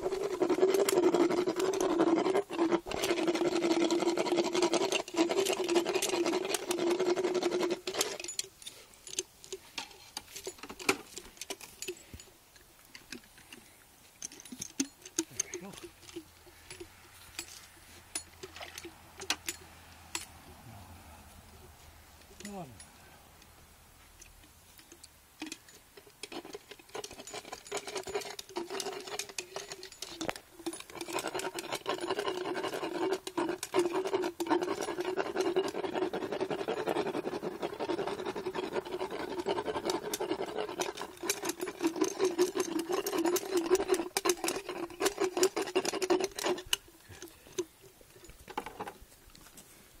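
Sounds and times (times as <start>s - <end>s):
rasping and clicking on teeth: 0.0s - 12.1s, 24.8s - 48.9s.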